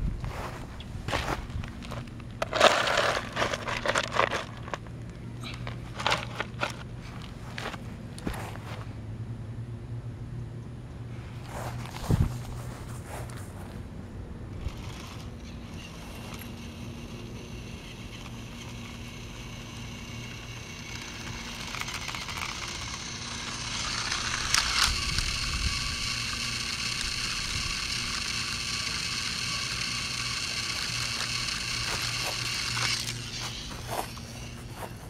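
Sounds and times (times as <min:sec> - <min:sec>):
toy train motor whining: 0:02.4 - 0:04.8, 0:14.6 - 0:35.0.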